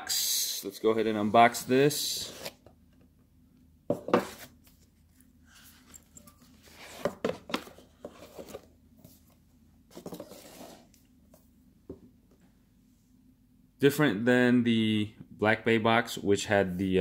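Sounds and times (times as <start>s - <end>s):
cardboard scraping: 6.6s - 9.2s, 9.9s - 11.0s.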